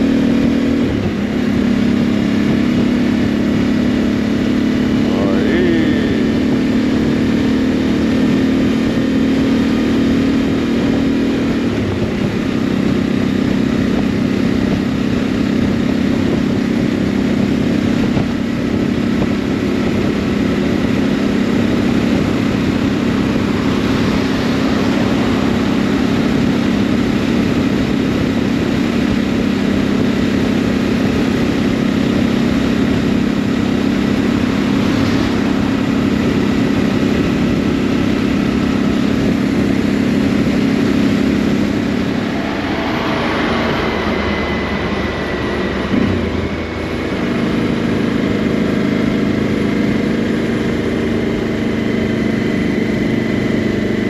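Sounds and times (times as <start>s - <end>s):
motorcycle engine cruising: 0.0s - 54.0s
wind and road noise: 0.0s - 54.0s
brief gliding tone: 41.8s - 46.6s.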